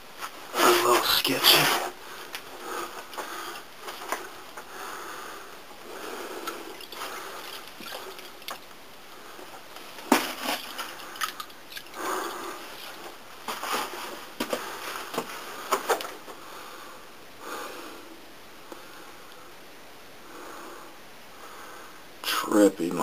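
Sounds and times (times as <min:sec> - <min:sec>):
close heavy breathing: 0:00.5 - 0:08.2, 0:11.9 - 0:13.0.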